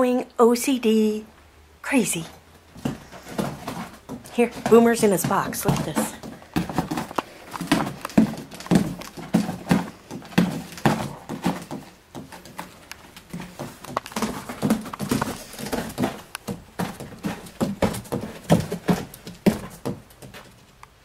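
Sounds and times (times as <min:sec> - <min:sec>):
cat scratching in cardboard box: 0:02.8 - 0:20.6.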